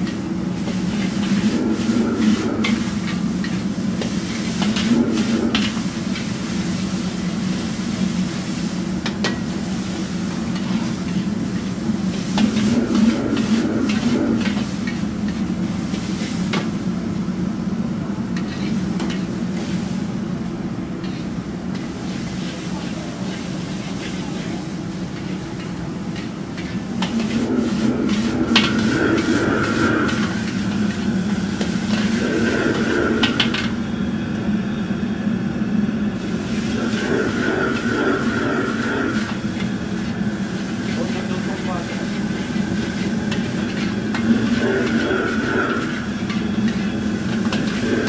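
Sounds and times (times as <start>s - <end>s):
ladle scraping wok: 0.0s - 16.8s, 18.3s - 20.0s, 21.0s - 33.8s, 36.3s - 48.0s
food sizzling: 0.0s - 33.8s, 36.2s - 48.0s.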